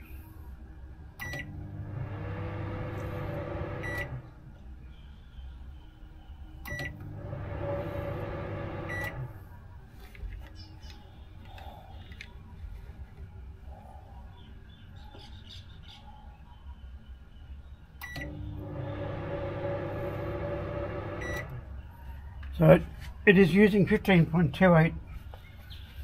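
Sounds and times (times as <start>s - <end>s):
microwave oven humming: 1.0s - 4.6s, 5.7s - 9.8s, 18.0s - 22.7s
microwave beep: 1.2s - 4.3s, 6.7s - 9.4s, 18.0s - 21.7s.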